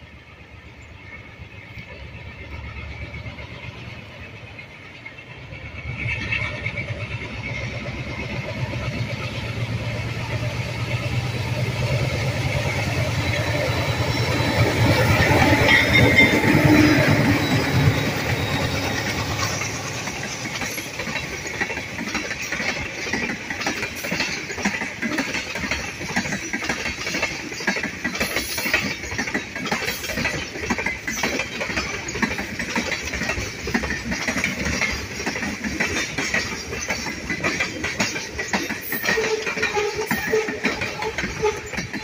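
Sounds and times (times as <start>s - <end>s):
train rolling rumble and hiss: 0.0s - 42.0s
train wheels clanking over rail joints: 1.0s - 42.0s.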